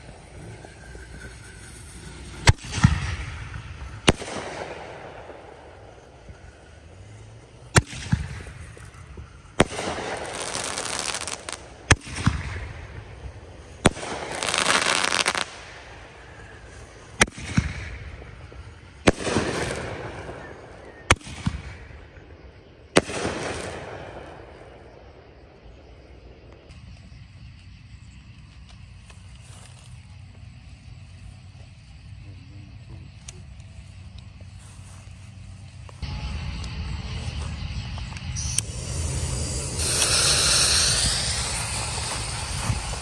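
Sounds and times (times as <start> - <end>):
firework mortar bangs: 0.0 - 6.4, 7.7 - 13.2, 17.0 - 22.0, 22.9 - 24.8
firework crackling: 0.0 - 22.3, 22.9 - 25.3, 33.6 - 43.0.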